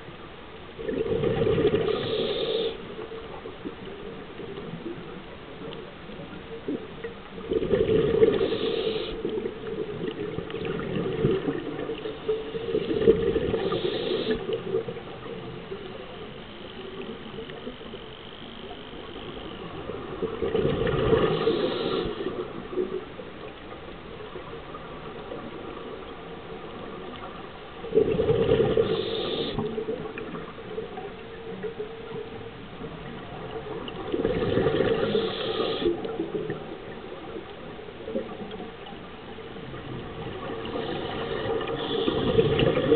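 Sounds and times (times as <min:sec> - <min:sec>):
exhaled bubbles rushing underwater: 0:00.7 - 0:18.0, 0:18.6 - 0:42.9.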